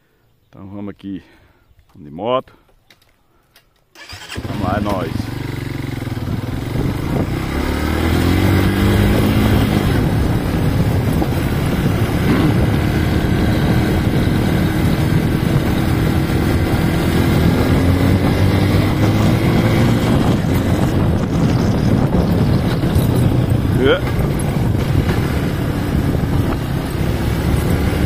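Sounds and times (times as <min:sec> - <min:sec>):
motorcycle engine running: 0:04.0 - 0:28.0
wind on microphone: 0:05.8 - 0:28.0.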